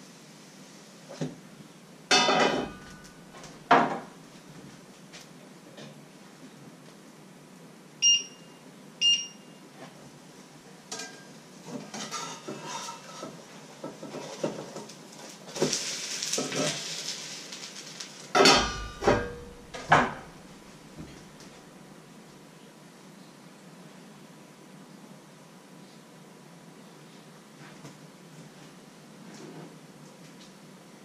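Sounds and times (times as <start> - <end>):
metal cookware clattering: 2.1 - 3.6, 11.9 - 13.4, 18.3 - 21.4
frying pan lid clanking: 18.4 - 20.5.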